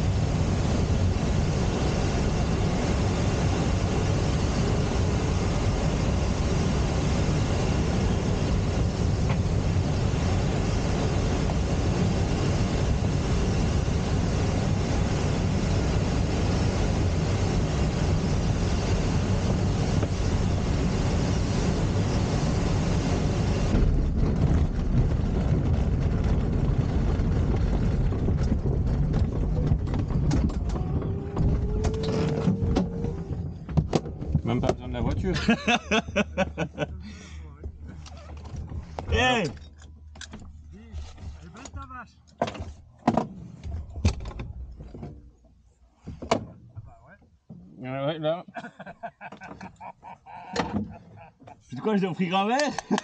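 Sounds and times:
air rushing over cockpit: 0:00.0 - 0:39.5
low rumble: 0:00.0 - 0:41.4.

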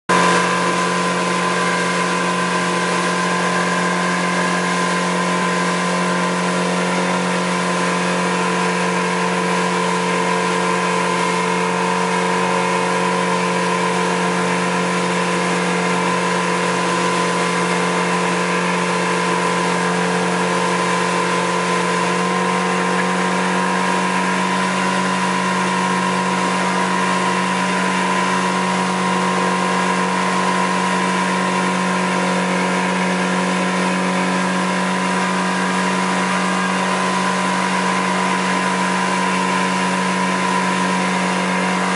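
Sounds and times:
outboard motor running: 0:00.0 - 0:41.9
boat wake hissing: 0:00.1 - 0:41.9.

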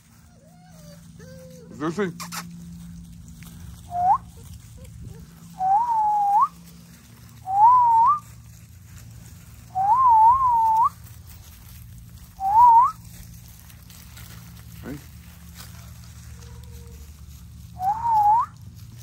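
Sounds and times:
puppy whining: 0:00.0 - 0:02.8, 0:03.8 - 0:06.6, 0:15.7 - 0:18.5.

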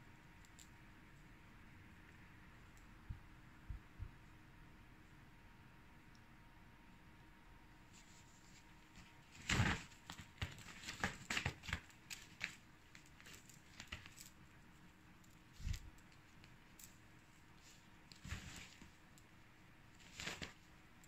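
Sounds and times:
nylon play tunnel rustling: 0:17.6 - 0:19.0.

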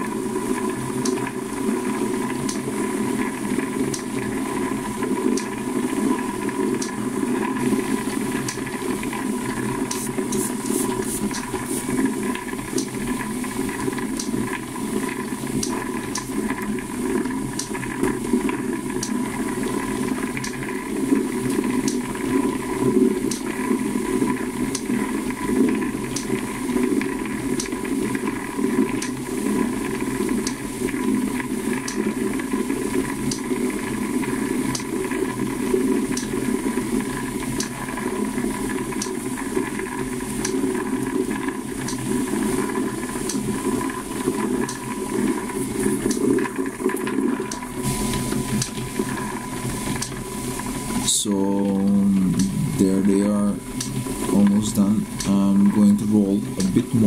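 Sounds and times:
rushing rattle in spinning drum: 0:00.0 - 0:57.0
light ticks: 0:02.4 - 0:02.6, 0:27.6 - 0:27.8
motor humming: 0:03.3 - 0:27.8, 0:39.5 - 0:57.0.

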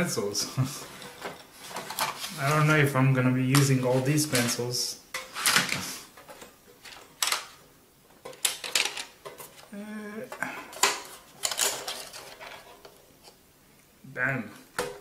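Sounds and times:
pencils rattling inside tin: 0:10.7 - 0:12.8
metal tins clattering: 0:10.7 - 0:12.9.

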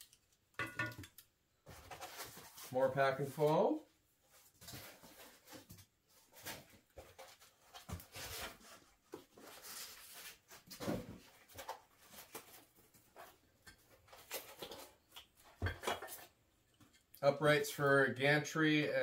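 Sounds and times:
cardboard and foam rustling: 0:01.6 - 0:16.3.

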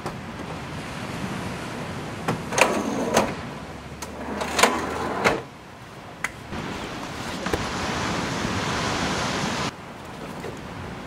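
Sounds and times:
surf: 0:00.0 - 0:11.0
wind: 0:00.0 - 0:11.0
drawer slides rolling with clunks: 0:02.3 - 0:05.5.

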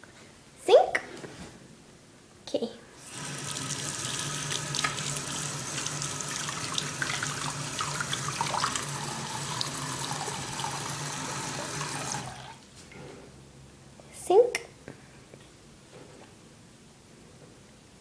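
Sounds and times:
faucet water splashing into sink: 0:03.0 - 0:12.6.

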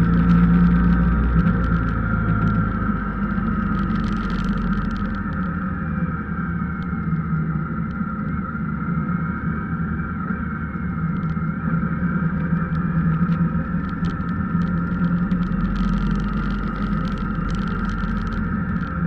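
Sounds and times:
road noise: 0:00.0 - 0:19.0
vehicle engine running: 0:00.0 - 0:19.0
scattered ticks: 0:12.7 - 0:19.0.

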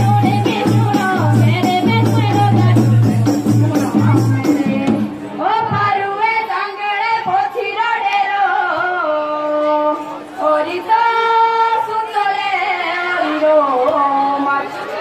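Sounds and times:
drumming: 0:00.0 - 0:06.0
girls singing folk song: 0:00.0 - 0:14.5.

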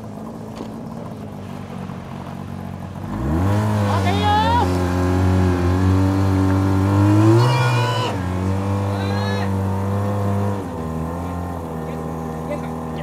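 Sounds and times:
fire pump engine running: 0:00.0 - 0:13.0
person shouting: 0:03.9 - 0:04.8, 0:07.1 - 0:09.6.

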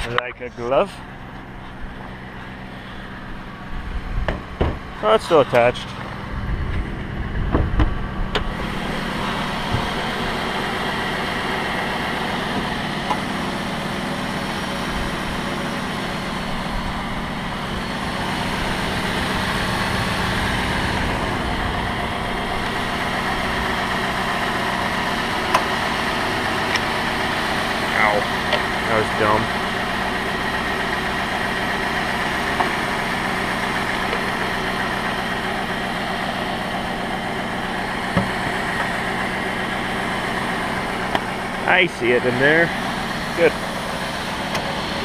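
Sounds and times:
car engine idling: 0:00.0 - 0:45.0
engine knocks: 0:00.0 - 0:45.0.

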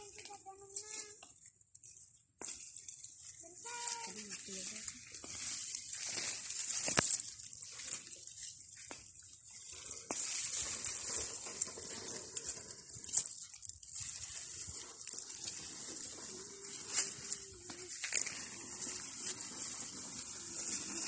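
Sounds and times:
plants rustling being pulled up: 0:00.0 - 0:21.0.

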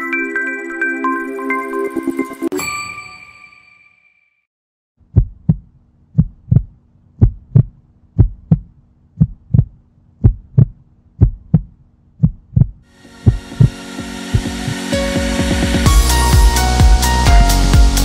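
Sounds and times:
heartbeat thumps: 0:05.1 - 0:14.8.

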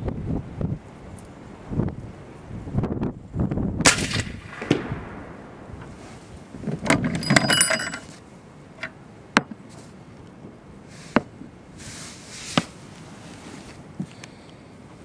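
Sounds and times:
rifle shot crack with metallic ring: 0:03.8 - 0:04.9.

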